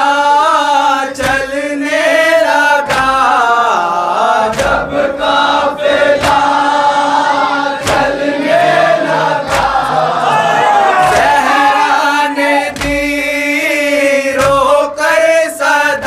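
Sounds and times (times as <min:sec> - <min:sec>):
lead voice chanting: 0:00.0 - 0:16.0
men chanting in unison: 0:00.0 - 0:16.0
chest-beating slaps: 0:01.2 - 0:01.6, 0:02.8 - 0:03.4, 0:04.4 - 0:06.8, 0:07.7 - 0:11.7, 0:12.6 - 0:13.3, 0:14.3 - 0:14.8.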